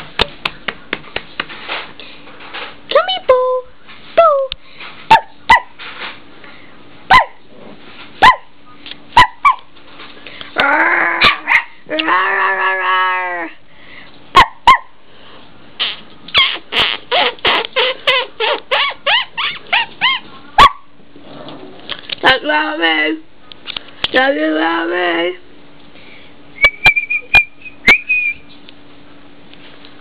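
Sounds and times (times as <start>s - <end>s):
puppy yapping: 5.1s - 5.8s, 7.1s - 7.4s, 8.2s - 8.5s, 9.2s - 9.7s, 11.2s - 11.8s, 17.2s - 20.9s
puppy whining: 16.4s - 20.8s.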